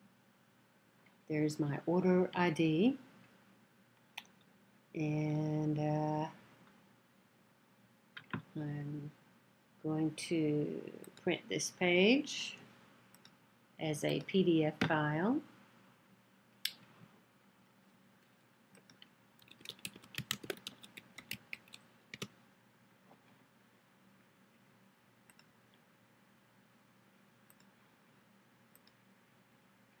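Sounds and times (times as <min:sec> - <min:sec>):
keyboard typing: 0:18.8 - 0:22.3
mouse clicks: 0:25.3 - 0:25.5.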